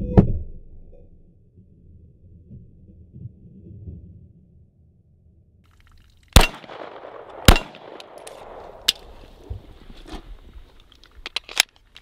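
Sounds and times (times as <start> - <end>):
gun handling clicks: 6.3 - 9.2, 10.8 - 12.0
pistol shots with echo: 6.4 - 8.9.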